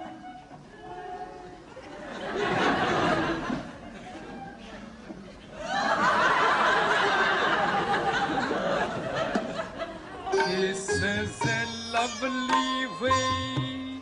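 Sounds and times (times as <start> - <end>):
audience laughing: 1.8 - 4.4, 5.3 - 10.4
sitar music: 10.2 - 14.0.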